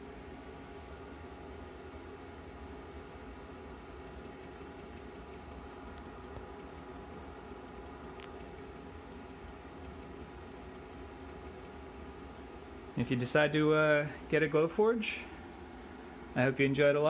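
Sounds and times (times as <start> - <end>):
cooling system and fan hum: 0.0 - 17.0
faint irregular ticking: 4.0 - 12.5.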